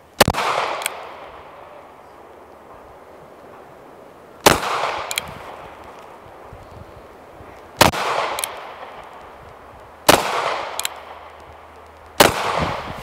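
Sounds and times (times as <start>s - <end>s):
revolver gunshots with echo: 0.2s - 1.8s, 4.4s - 5.8s, 7.8s - 9.2s, 10.0s - 11.4s, 12.2s - 13.0s.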